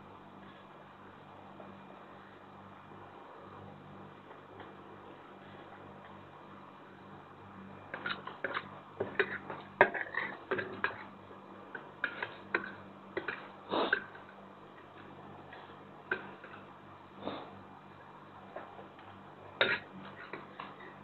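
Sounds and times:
spoon and fork scraping a plate: 7.9s - 11.0s, 19.6s - 21.0s.

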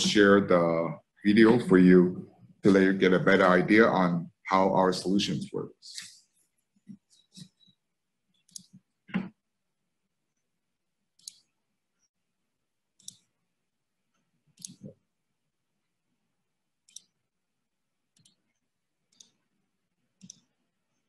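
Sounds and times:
computer mouse clicks: 6.9s - 9.3s, 11.2s - 11.5s, 13.0s - 13.3s, 14.5s - 15.0s, 16.8s - 17.2s, 18.1s - 19.5s, 20.1s - 20.6s.

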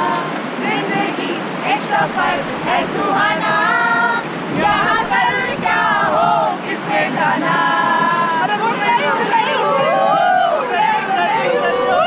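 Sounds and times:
river water rushing: 0.0s - 12.0s
women singing together: 0.0s - 12.0s.

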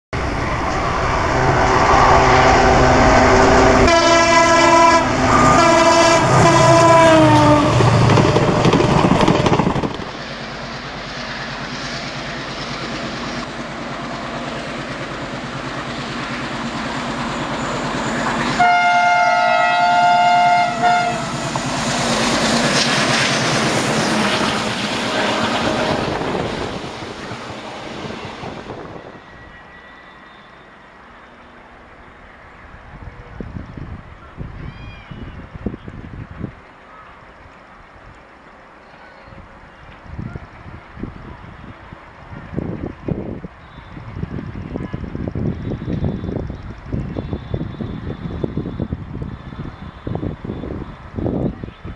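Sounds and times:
diesel locomotive engine: 0.1s - 51.9s
train running noise: 0.2s - 51.9s
train horn blast: 1.3s - 8.4s, 18.4s - 22.5s, 23.7s - 26.8s.

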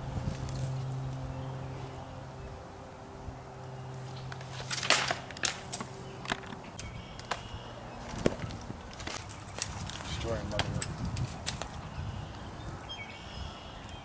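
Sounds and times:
steady low hum: 0.0s - 13.6s
twigs snapping underfoot: 4.0s - 11.8s.

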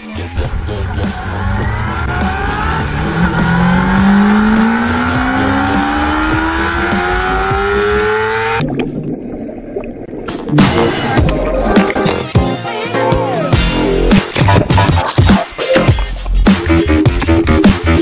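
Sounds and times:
motorcycle engine accelerating: 0.4s - 8.6s.

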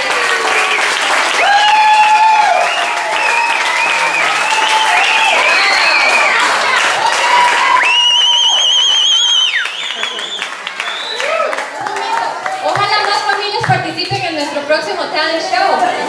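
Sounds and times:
high-pitched cheers and whoops: 0.0s - 12.7s
audience applauding: 0.0s - 14.1s.

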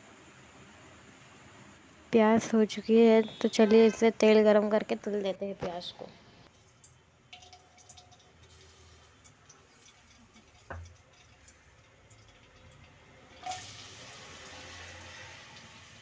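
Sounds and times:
faint ticks from heating pot: 6.7s - 13.6s
onions sizzling in hot oil: 8.4s - 11.7s, 13.3s - 16.0s.

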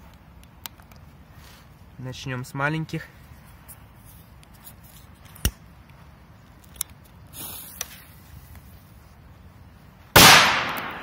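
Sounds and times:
firecracker bang: 10.2s - 11.0s.

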